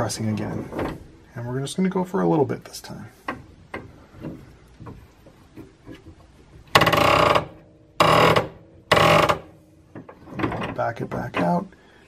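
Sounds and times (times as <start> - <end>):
ball bearing creaking on shaft: 3.2 - 11.4.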